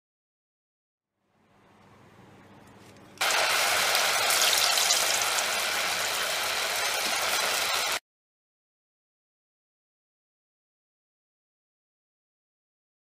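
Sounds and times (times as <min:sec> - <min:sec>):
dough deep-frying in hot oil: 0:03.2 - 0:08.0.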